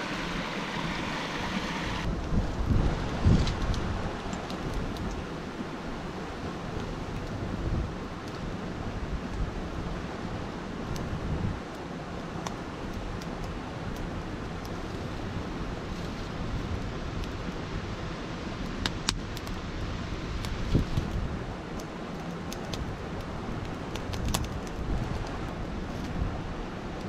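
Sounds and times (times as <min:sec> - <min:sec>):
fire popping: 0:00.0 - 0:10.1, 0:18.5 - 0:19.6, 0:20.3 - 0:26.2
campfire crackling: 0:00.0 - 0:27.0
steady rushing noise: 0:00.0 - 0:27.0.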